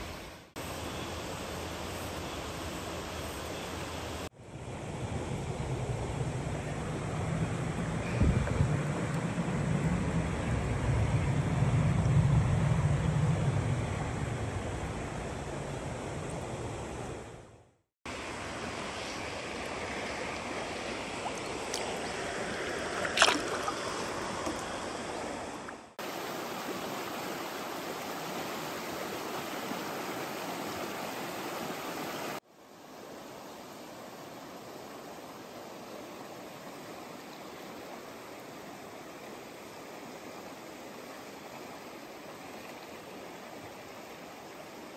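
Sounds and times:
stream water over rapids: 0:18.1 - 0:44.9.

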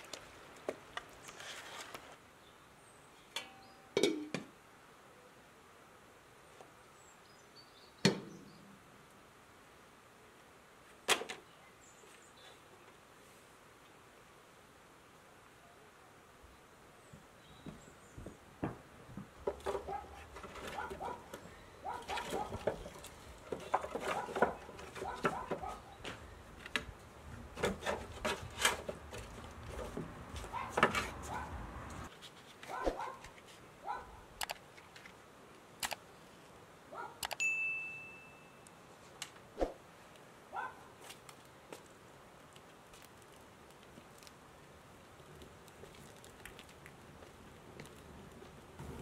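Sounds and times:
metal pot clanking: 0:03.4 - 0:04.3
firewood sticks knocking and rubbing: 0:18.6 - 0:33.6.

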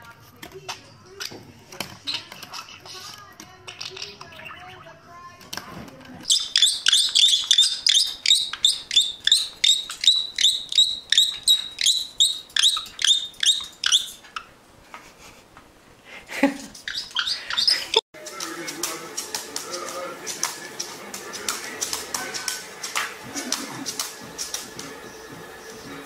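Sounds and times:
parrot shrill chirping calls: 0:02.1 - 0:04.9, 0:06.2 - 0:14.6, 0:16.7 - 0:18.0.

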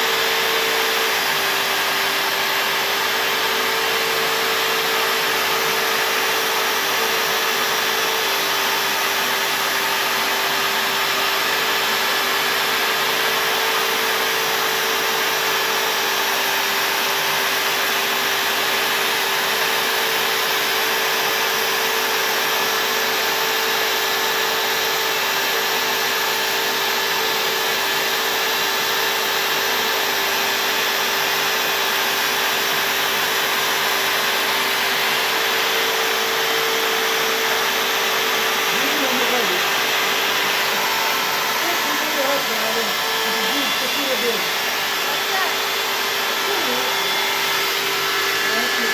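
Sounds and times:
router spindle cutting board: 0:00.0 - 0:48.9
dust extraction vacuum hiss: 0:24.0 - 0:48.9.

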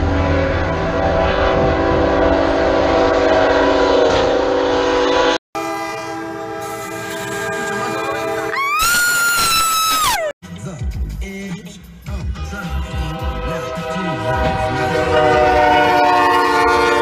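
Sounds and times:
second locomotive horn chord: 0:00.0 - 0:08.6, 0:12.3 - 0:17.0
locomotive air horn blast: 0:00.0 - 0:08.8, 0:12.3 - 0:17.0.

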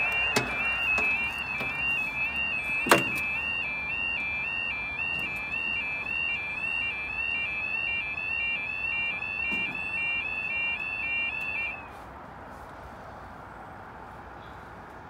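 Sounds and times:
level crossing alarm warbling: 0:00.0 - 0:11.9.

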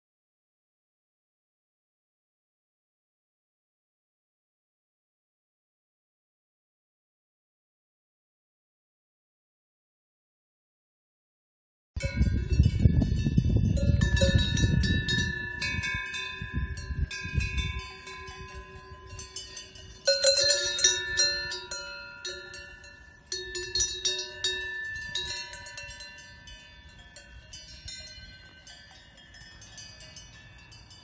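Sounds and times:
cowbells clanking: 0:12.0 - 0:31.0.

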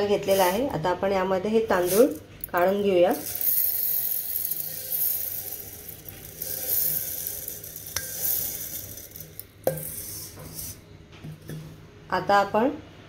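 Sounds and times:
rice pouring into metal jar: 0:01.8 - 0:10.8.

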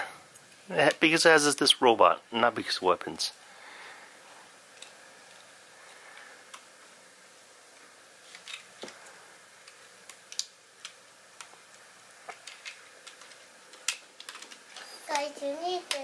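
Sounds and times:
faint steady hiss: 0:00.0 - 0:16.0
plastic toy bricks clicking: 0:12.4 - 0:15.2.

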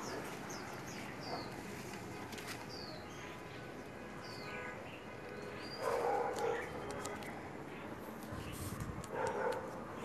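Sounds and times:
dog barking: 0:01.2 - 0:01.6, 0:05.8 - 0:06.7, 0:09.1 - 0:09.8.

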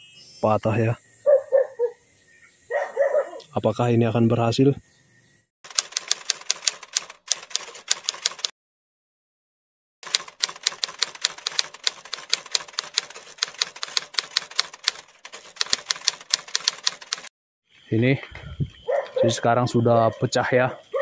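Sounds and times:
rapid keyboard typing clicks: 0:05.7 - 0:08.5, 0:10.0 - 0:17.3.

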